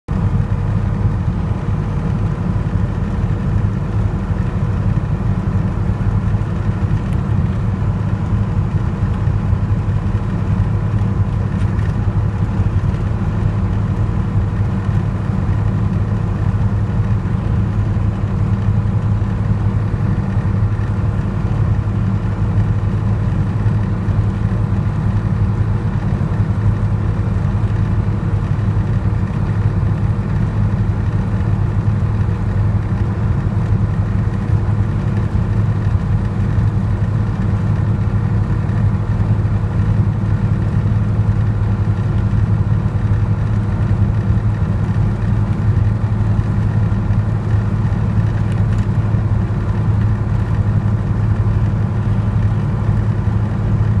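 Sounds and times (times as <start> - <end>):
diesel engine drone: 0.0 - 54.0
road noise: 0.1 - 54.0.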